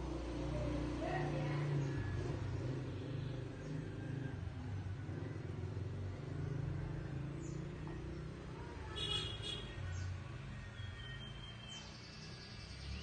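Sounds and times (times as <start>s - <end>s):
vehicle engine rumbling: 0.0s - 13.0s
high bird chirp: 9.5s - 13.0s.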